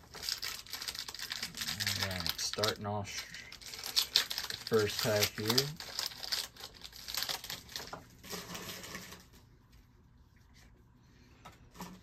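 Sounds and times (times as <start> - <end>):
card pack wrapper crinkling: 0.0 - 9.2.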